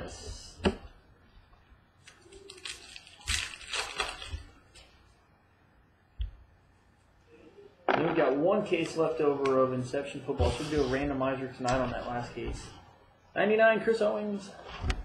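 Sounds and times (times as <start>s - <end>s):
trading cards rustling: 2.0s - 4.9s.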